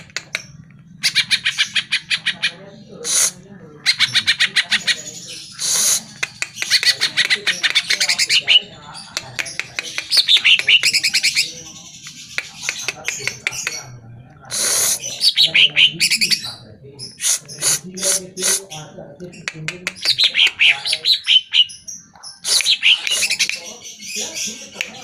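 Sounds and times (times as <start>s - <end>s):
bird singing loudly: 14.5s - 18.8s, 20.0s - 24.7s.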